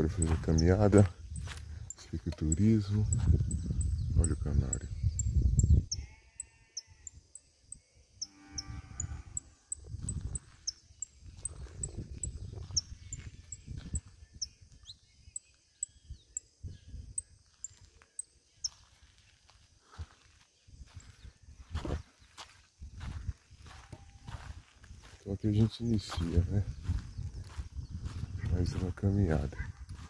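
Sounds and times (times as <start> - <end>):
farm animal bleating: 5.9 - 7.2, 8.2 - 9.4.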